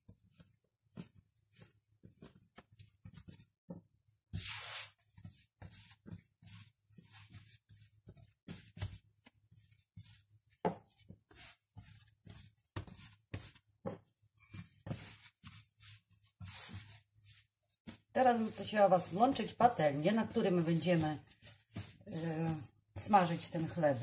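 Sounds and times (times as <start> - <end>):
hands kneading dough: 0.0 - 24.0
dough rubbing hiss: 4.4 - 5.0.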